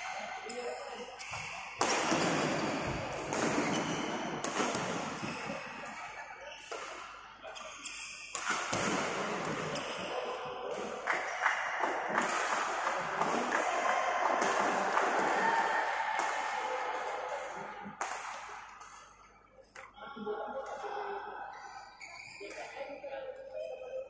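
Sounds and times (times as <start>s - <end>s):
sports hall background din: 0.0s - 24.0s
racket hitting shuttlecock: 1.2s - 6.0s, 8.3s - 10.1s, 10.7s - 19.9s.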